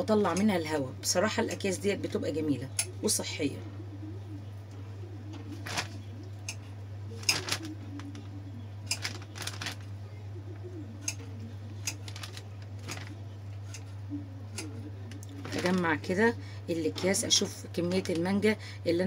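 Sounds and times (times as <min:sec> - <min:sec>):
steady low hum: 0:00.0 - 0:19.0
plastic bags crinkling: 0:05.6 - 0:06.0, 0:07.2 - 0:09.9, 0:11.8 - 0:13.9, 0:15.1 - 0:16.3.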